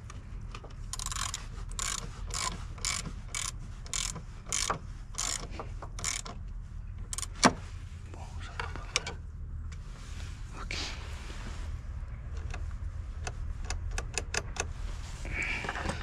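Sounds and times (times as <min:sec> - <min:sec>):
hand ratchet clicking: 0:00.9 - 0:06.4, 0:07.1 - 0:07.4.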